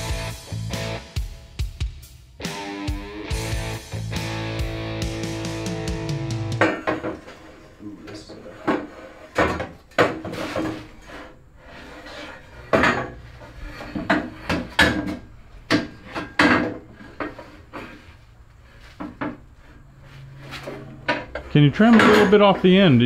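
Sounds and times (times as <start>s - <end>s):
steel tubing clanking and scraping: 6.6s - 18.2s, 18.8s - 23.0s.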